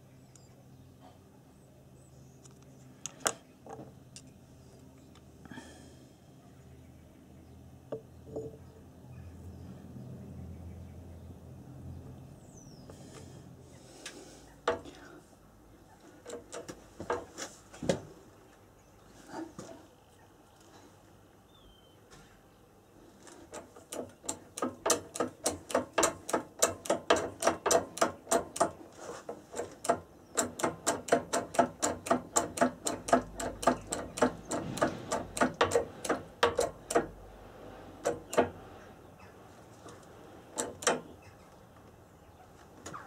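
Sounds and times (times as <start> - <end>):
light metal taps with ring: 7.9 - 8.6.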